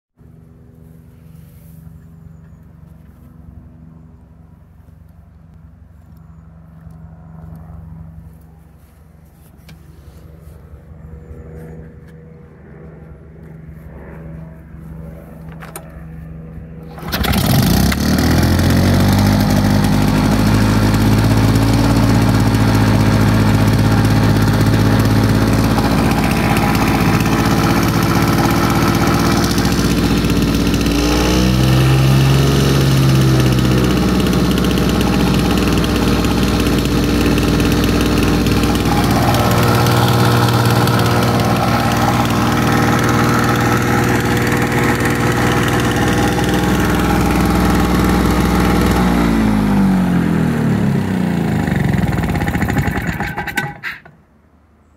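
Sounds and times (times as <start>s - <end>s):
lawnmower engine starting and running: 15.4s - 54.4s.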